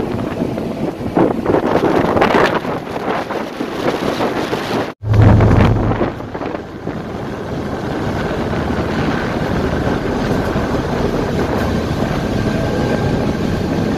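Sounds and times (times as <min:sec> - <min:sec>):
wind buffeting microphone: 0:00.0 - 0:13.9
loud low hum: 0:05.0 - 0:08.9
ferry engine rumble: 0:05.0 - 0:13.9.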